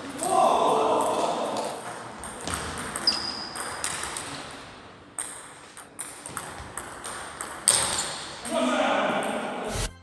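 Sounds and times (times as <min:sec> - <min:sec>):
table tennis balls clicking: 0:01.0 - 0:04.5, 0:05.2 - 0:08.1.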